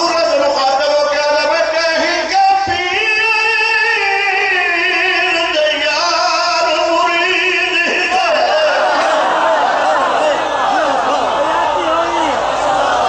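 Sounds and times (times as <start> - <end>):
man chanting into a microphone: 0.0 - 9.0.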